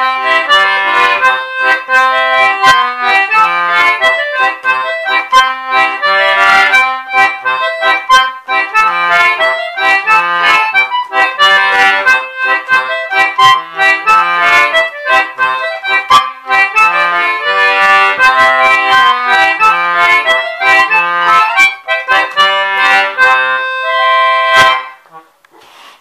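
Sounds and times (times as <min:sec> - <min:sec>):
concertina playing a dance tune: 0:00.0 - 0:25.3.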